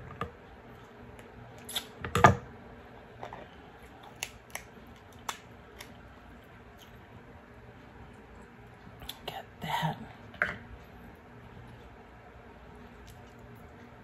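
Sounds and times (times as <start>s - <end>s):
crab shell cracking: 3.9s - 6.1s.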